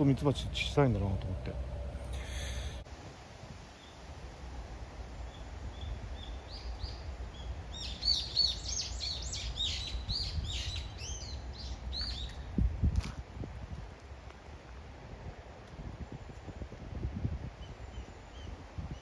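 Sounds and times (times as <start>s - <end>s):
low rumble: 0.0s - 2.8s
songbird singing: 3.7s - 12.6s, 16.0s - 19.0s.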